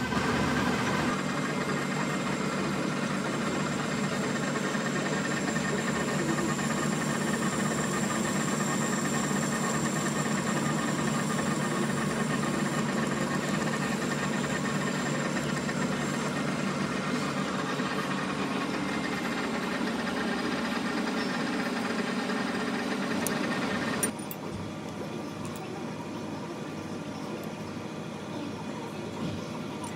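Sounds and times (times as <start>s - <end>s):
metal lathe cutting: 0.0s - 24.2s.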